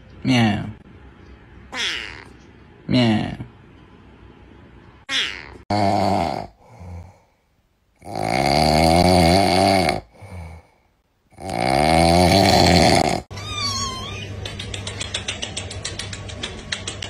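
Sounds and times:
wavering high kitten call: 1.8s - 2.3s, 13.3s - 14.4s
kitten snoring: 11.3s - 13.3s.

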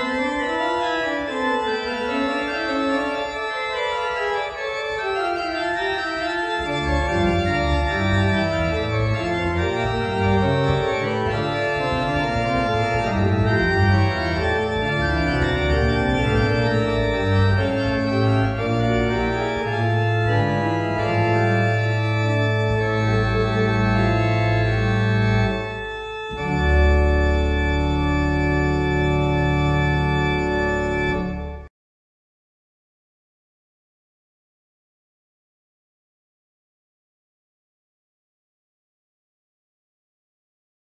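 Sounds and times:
pipe organ playing: 0.0s - 31.7s.

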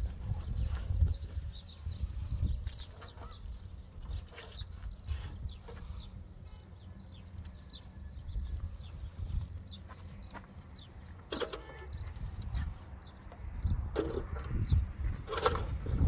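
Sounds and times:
wind rumbling on microphone: 0.0s - 11.0s, 11.9s - 16.0s
small birds chirping: 0.0s - 16.0s.

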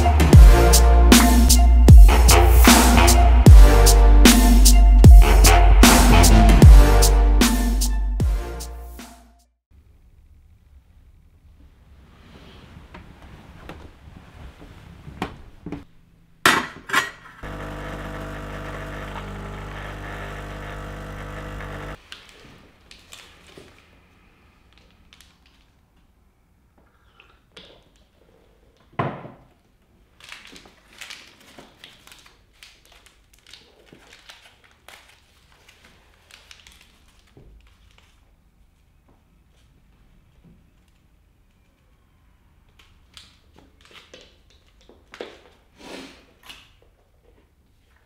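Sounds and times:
electric appliance buzzing: 17.4s - 22.0s.

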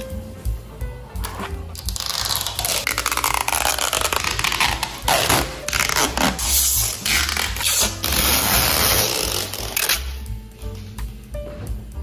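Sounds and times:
plastic film peeling off: 1.8s - 10.1s.

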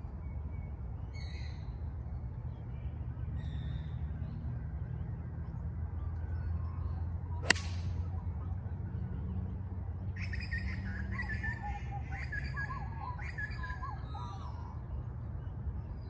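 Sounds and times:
birds calling: 2.4s - 16.0s
golf ball struck click: 7.4s - 7.9s.

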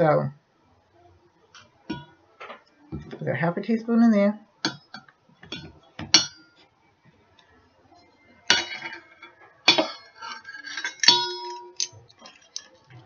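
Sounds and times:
spoon clinking against bowl: 8.5s - 12.7s.

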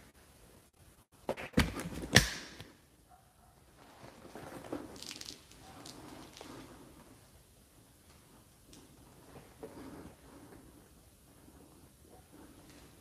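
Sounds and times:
faint rustling and shuffling: 3.6s - 13.0s.

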